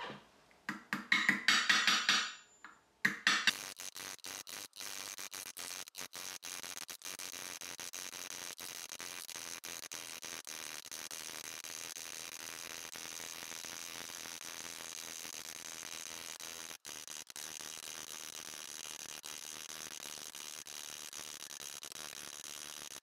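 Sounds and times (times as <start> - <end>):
hammer striking metal cup: 0.0 - 3.5.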